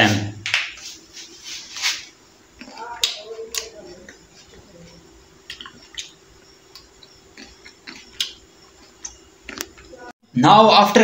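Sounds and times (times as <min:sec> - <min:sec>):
faint steady hum: 0:00.0 - 0:11.0
faint chewing: 0:02.6 - 0:10.1
mouth clicks: 0:05.4 - 0:09.9.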